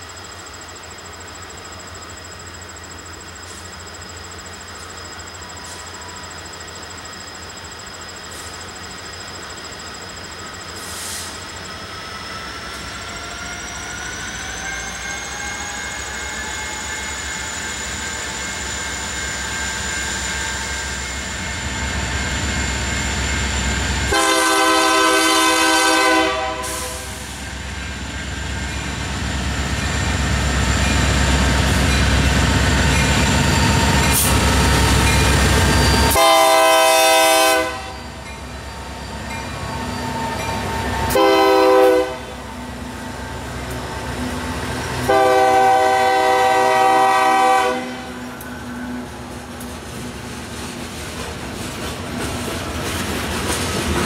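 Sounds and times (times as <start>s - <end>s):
diesel locomotives running: 0.0s - 54.0s
multi-chime air horn blasts: 24.1s - 27.2s, 36.1s - 38.2s, 41.1s - 42.4s, 45.0s - 48.2s.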